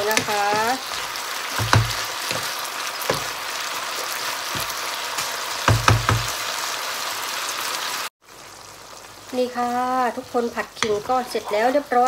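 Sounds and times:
wooden spoon knocking on pan: 0.0 - 3.4, 4.5 - 4.8, 5.6 - 6.4
stir-fry sizzling in a pan: 0.0 - 12.0.

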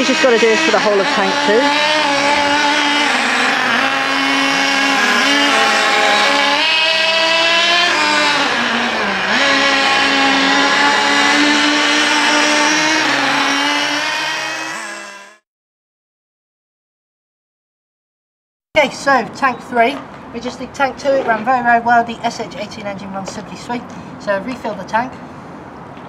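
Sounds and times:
nitro engine buzzing: 0.0 - 15.4.

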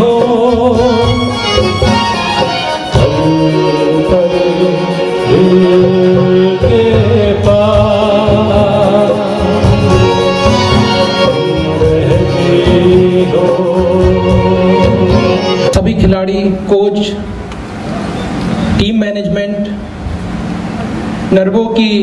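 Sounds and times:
man singing into a microphone: 0.0 - 16.7
instrumental backing track: 0.0 - 21.5.

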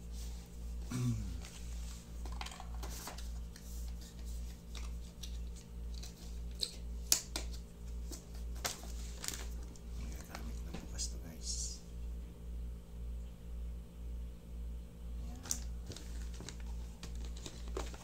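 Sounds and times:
low pulsing hum: 0.0 - 2.3, 3.3 - 18.0
cardboard box and plastic rustling: 8.0 - 10.5, 15.6 - 18.0.

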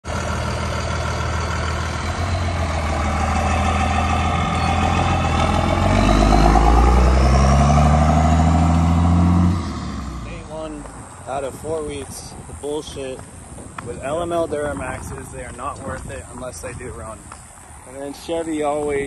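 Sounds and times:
truck engine driving past: 0.0 - 11.9.

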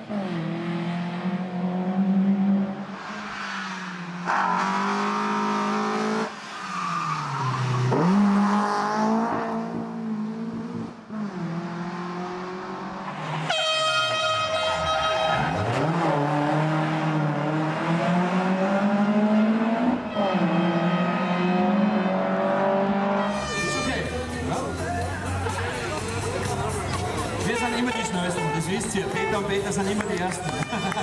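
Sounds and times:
rally car engine revving: 0.0 - 27.7
horn blaring: 13.4 - 16.2, 19.6 - 24.4, 27.4 - 31.0.

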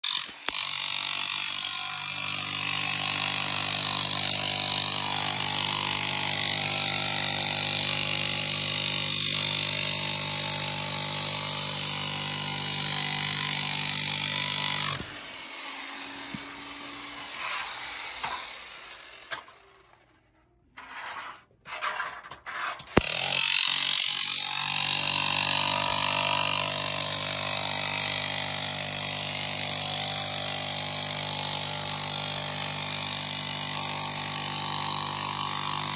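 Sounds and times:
chipping hammer scraping concrete: 0.1 - 15.2, 20.8 - 35.9.

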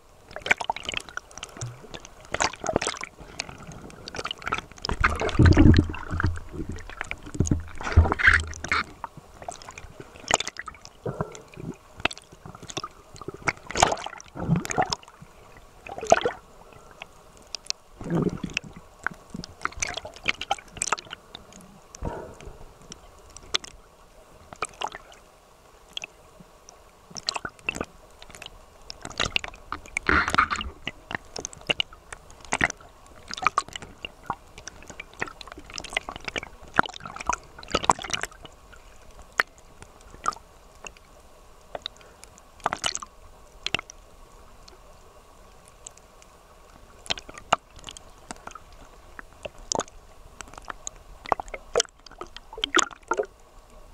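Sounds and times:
low rumbling water surges: 0.0 - 53.9
water sloshing and gurgling: 0.0 - 53.9
sharp water splashes: 13.4 - 15.1.

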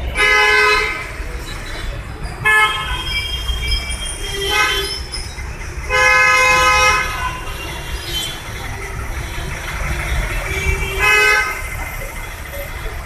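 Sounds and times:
vehicle horns honking: 0.0 - 1.3, 2.4 - 5.2, 5.9 - 8.5, 10.1 - 11.8.

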